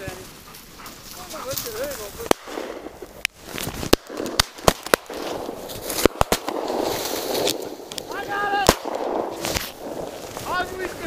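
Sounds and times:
shotgun shots: 2.2s - 3.0s, 3.8s - 10.9s.

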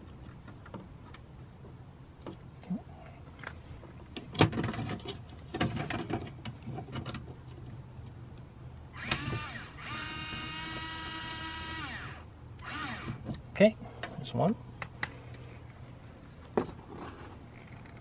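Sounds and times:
cordless screwdriver whining: 9.0s - 13.2s.

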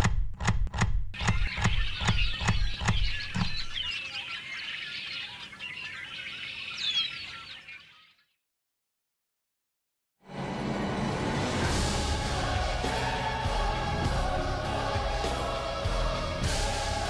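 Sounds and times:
steady beat of knocks: 0.0s - 3.9s
birds chirping: 1.2s - 8.4s.

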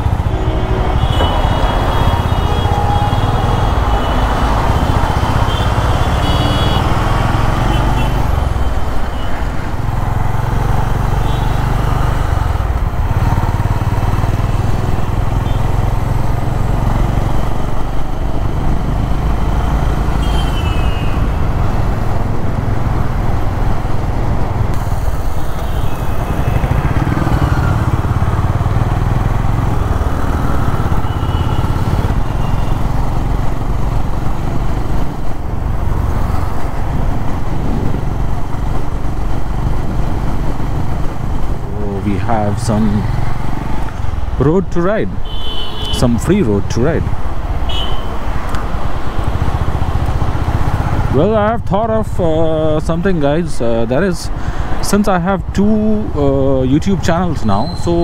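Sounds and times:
road traffic: 0.0s - 58.0s
motorcycle engine running: 9.8s - 44.4s.

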